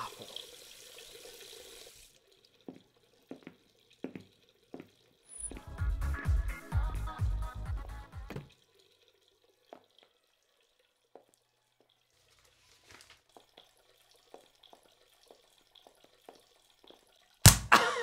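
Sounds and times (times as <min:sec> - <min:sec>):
music: 0:05.4 - 0:08.5.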